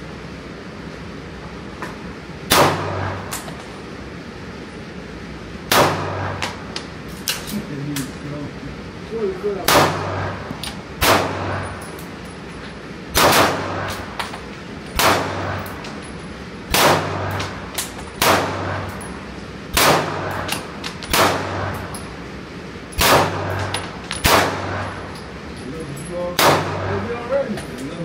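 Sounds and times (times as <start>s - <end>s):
pistol shots echoing indoors: 2.5s - 3.4s, 5.7s - 6.6s, 9.6s - 11.8s, 13.1s - 14.1s, 15.0s - 15.7s, 16.7s - 19.0s, 19.7s - 22.0s, 23.0s - 25.0s, 26.4s - 27.0s.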